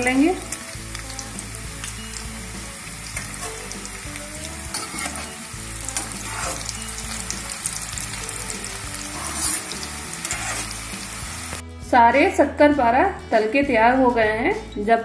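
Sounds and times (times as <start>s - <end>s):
dough deep-frying in oil: 0.0s - 11.6s.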